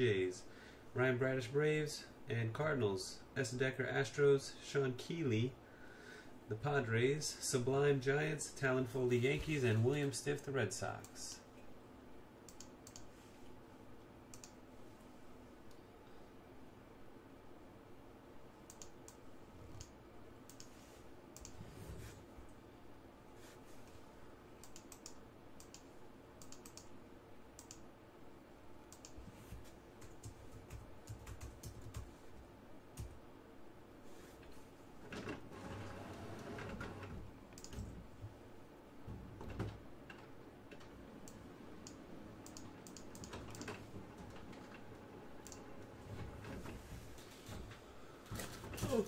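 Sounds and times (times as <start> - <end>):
computer keyboard typing: 24.6 - 25.8, 26.4 - 26.9, 30.0 - 32.2, 36.9 - 38.0, 41.2 - 44.8.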